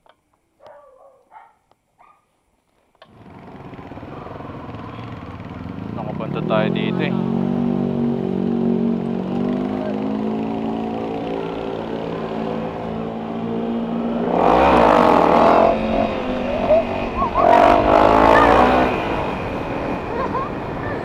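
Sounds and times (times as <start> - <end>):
motorcycle engine revving: 3.0 - 21.0
rushing wind noise: 13.9 - 21.0.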